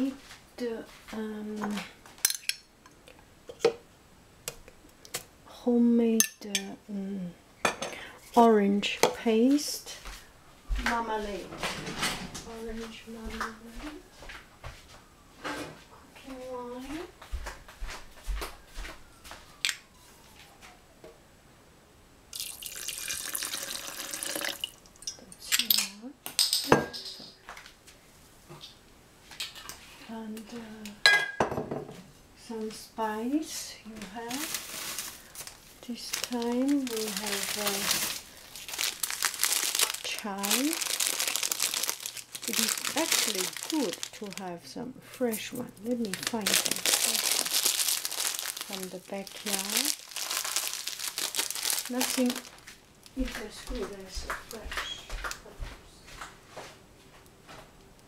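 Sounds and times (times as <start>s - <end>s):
liquid pouring into plastic cup: 22.4s - 24.8s
person speaking: 35.8s - 38.3s, 40.0s - 40.9s, 42.4s - 47.6s, 48.6s - 50.0s, 51.8s - 52.5s, 53.1s - 56.0s.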